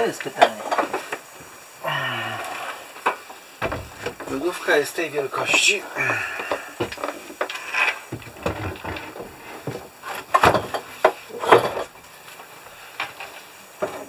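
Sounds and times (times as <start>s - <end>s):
sharp knocks: 3.6s - 4.4s.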